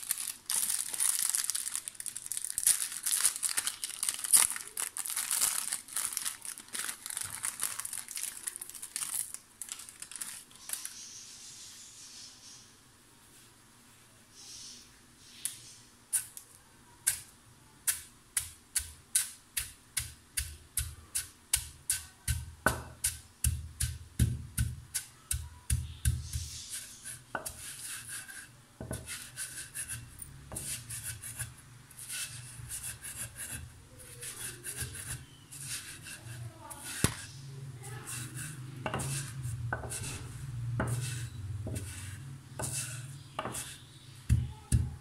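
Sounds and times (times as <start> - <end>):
pestle grinding against stone: 18.4 - 37.3, 38.1 - 44.9
pestle pounding in mortar: 19.6 - 26.5, 38.9 - 40.2, 43.4 - 45.0.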